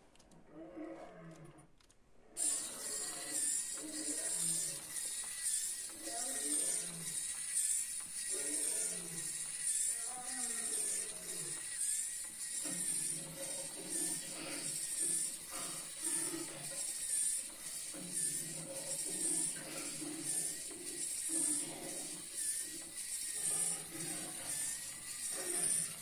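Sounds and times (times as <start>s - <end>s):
rhythmic clicking clatter: 2.4s - 26.0s
small electric motor whirring: 2.4s - 26.0s.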